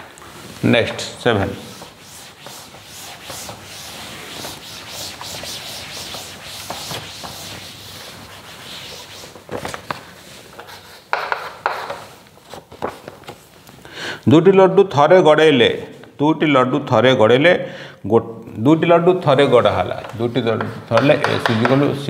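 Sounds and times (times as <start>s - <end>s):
duster wiping chalkboard: 0.0s - 13.4s
chalk scraping on board: 1.4s - 9.4s.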